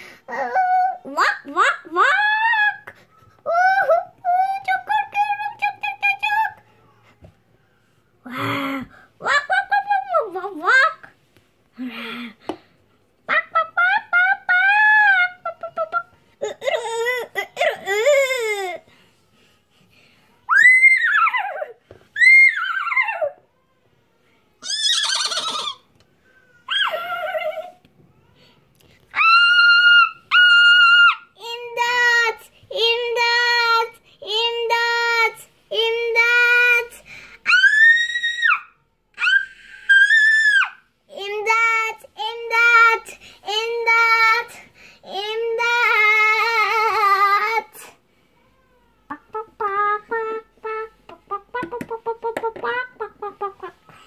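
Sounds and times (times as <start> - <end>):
child making squeaky animal cries: 24.6 - 25.8, 26.6 - 27.7, 37.4 - 40.8
child singing wordless notes: 49.1 - 53.8.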